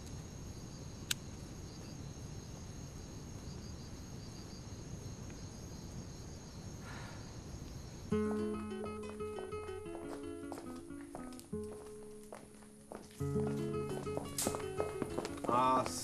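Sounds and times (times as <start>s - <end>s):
crickets chirping: 0.0s - 16.0s
low outdoor background noise: 0.0s - 16.0s
music with distinct notes: 8.2s - 12.4s, 13.2s - 15.8s.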